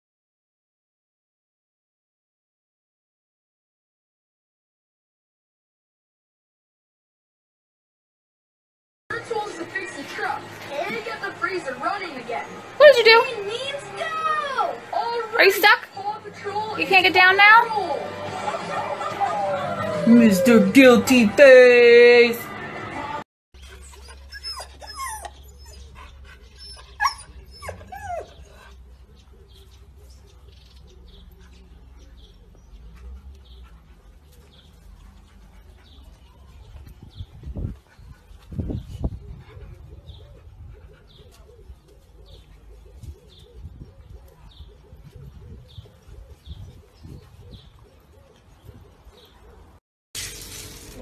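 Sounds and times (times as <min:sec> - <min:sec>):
dog whining and yipping: 0:23.6 - 0:28.7
bird chirping: 0:23.6 - 0:37.3
bird cooing: 0:39.2 - 0:49.7.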